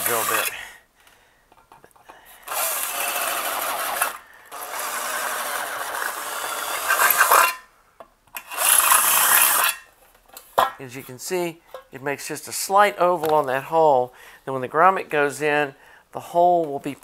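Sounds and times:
drill bit rasping against metal: 0.0s - 0.6s, 2.5s - 7.6s.

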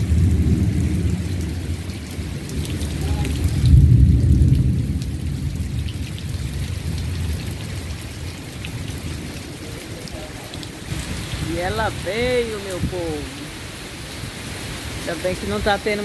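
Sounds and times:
deep rumble: 0.0s - 8.1s
heavy rain pouring: 0.0s - 16.0s.

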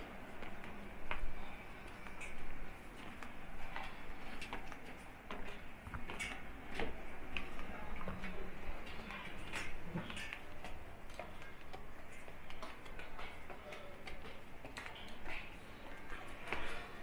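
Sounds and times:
low background hum: 0.0s - 17.0s.

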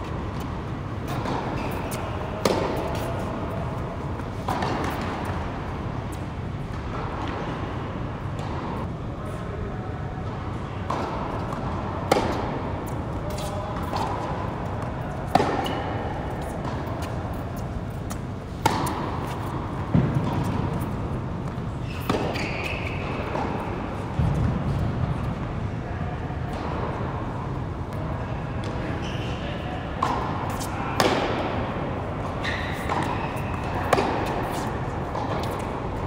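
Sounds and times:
tennis ball struck by rackets: 0.3s - 5.4s, 10.9s - 25.0s, 30.0s - 36.0s.

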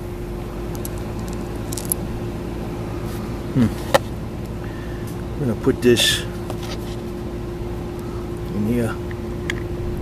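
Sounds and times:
background buzzing hum: 0.0s - 10.0s
small metal parts clicking: 0.7s - 2.0s.

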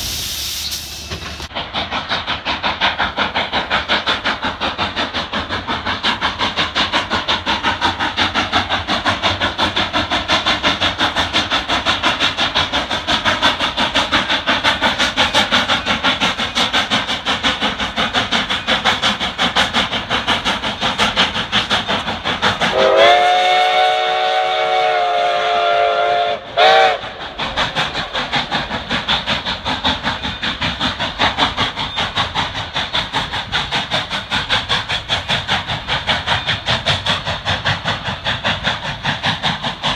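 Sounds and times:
steam locomotive chuffing: 0.0s - 39.9s
steam whistle blasts: 22.7s - 27.2s.

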